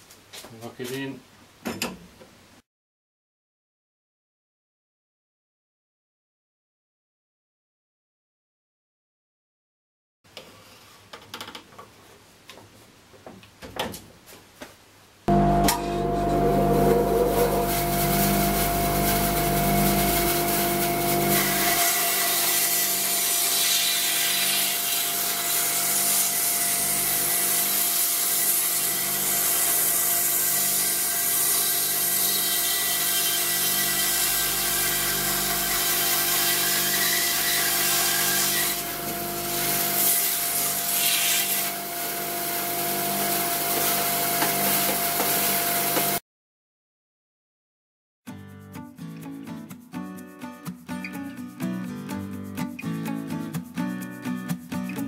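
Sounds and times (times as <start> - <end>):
bandsaw cutting log: 15.6 - 46.2.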